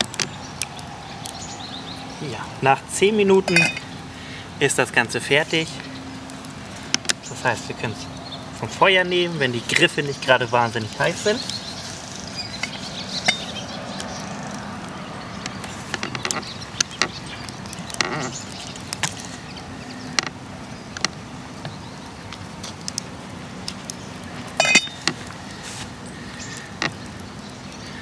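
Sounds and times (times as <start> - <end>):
metal spoon clinking on enamel pot: 24.6 - 25.0.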